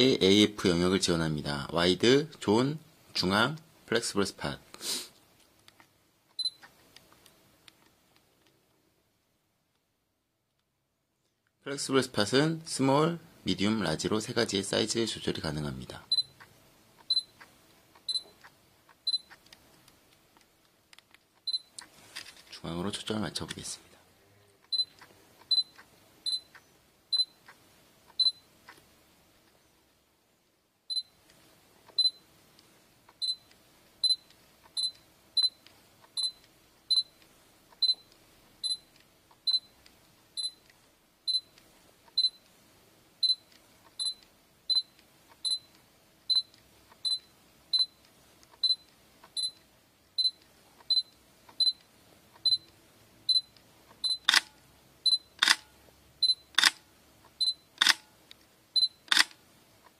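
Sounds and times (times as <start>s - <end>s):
camera focus beeps: 6.4s - 6.7s, 18.0s - 18.4s, 19.1s - 19.4s, 24.7s - 28.4s, 33.1s - 37.2s, 37.8s - 38.9s, 39.5s - 39.8s, 40.4s - 40.7s, 43.2s - 48.0s, 48.6s - 49.6s, 50.2s - 52.7s, 53.3s - 54.5s, 55.1s - 56.8s, 57.4s - 58.1s, 58.8s - 59.4s
camera click: 54.2s - 54.5s, 55.4s - 55.7s, 56.5s - 56.8s, 57.8s - 58.1s, 59.0s - 59.4s.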